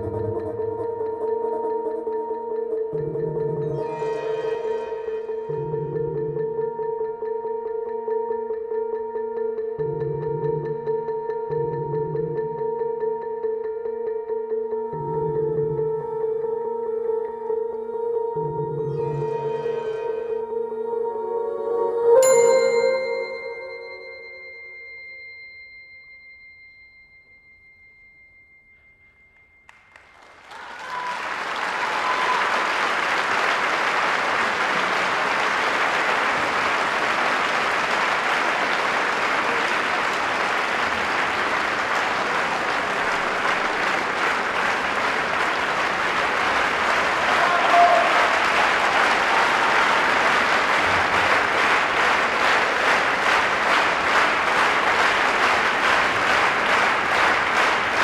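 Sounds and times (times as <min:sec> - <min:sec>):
held music notes: 0:00.0 - 0:25.1
audience applause: 0:29.9 - 0:58.0.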